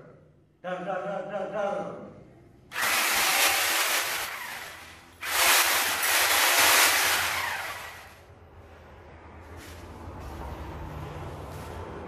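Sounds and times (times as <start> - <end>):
angle grinder running: 2.7 - 8.2.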